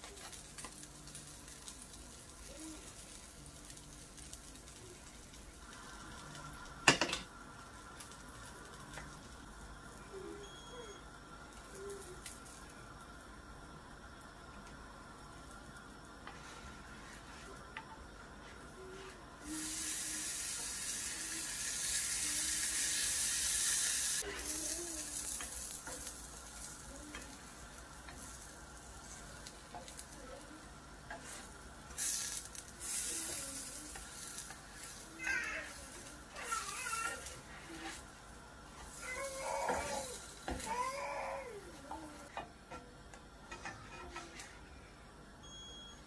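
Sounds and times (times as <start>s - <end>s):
food sizzling in oil: 0.0s - 42.3s
plastic spatula turning food: 24.2s - 42.4s.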